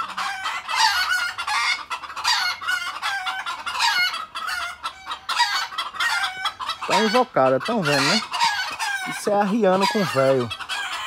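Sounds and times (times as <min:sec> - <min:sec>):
chickens calling excitedly: 0:00.0 - 0:11.0.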